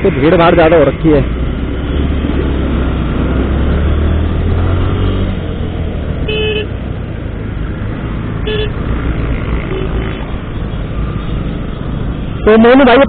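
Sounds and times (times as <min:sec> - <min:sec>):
road noise: 0:00.0 - 0:13.0
short horn beep: 0:06.3 - 0:06.7.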